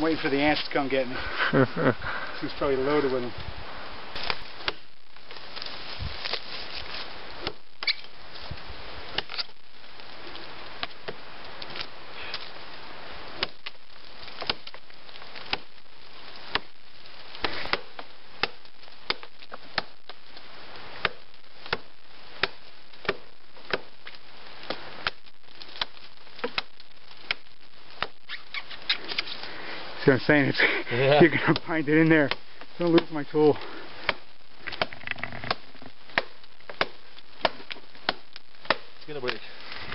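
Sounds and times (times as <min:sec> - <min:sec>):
blade chopping wood: 0:09.1 - 0:09.5, 0:13.4 - 0:13.8, 0:14.4 - 0:14.8, 0:15.4 - 0:15.7, 0:17.4 - 0:20.2, 0:21.0 - 0:23.9, 0:24.6 - 0:25.2, 0:34.0 - 0:39.4.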